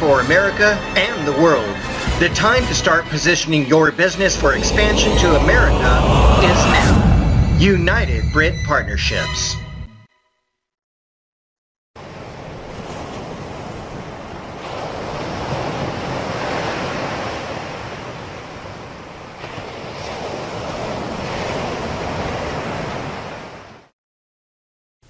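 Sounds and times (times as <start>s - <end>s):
ocean surf on a beach: 12.0s - 23.9s.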